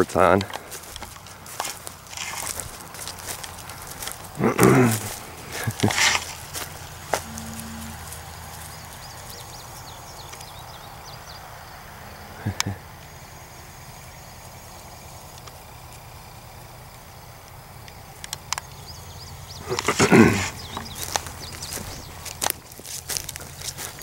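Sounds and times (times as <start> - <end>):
faint high chirps: 7.1 - 9.5, 19.6 - 22.0.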